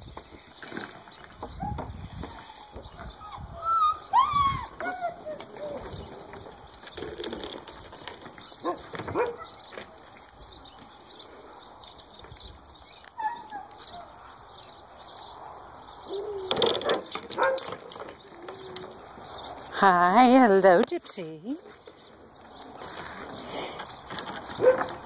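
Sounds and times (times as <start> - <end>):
dogs whining and yipping: 0.0 - 10.2, 12.9 - 14.6, 15.9 - 19.7, 24.3 - 25.0
dogs barking: 8.6 - 9.6, 16.1 - 17.9, 24.5 - 25.0.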